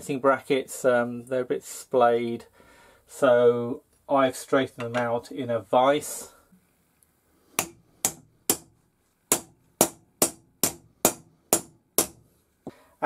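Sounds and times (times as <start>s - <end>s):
hammer striking metal bracket: 7.6s - 8.7s, 9.3s - 12.2s.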